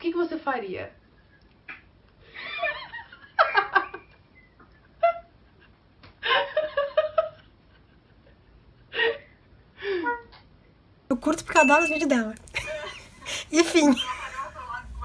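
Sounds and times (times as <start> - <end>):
woman laughing: 12.5 - 15.0.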